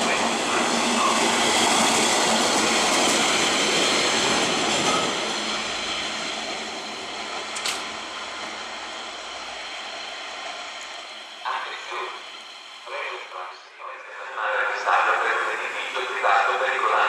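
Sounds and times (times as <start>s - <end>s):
diesel locomotive passing: 0.0s - 17.0s
sharp click: 7.6s - 7.9s.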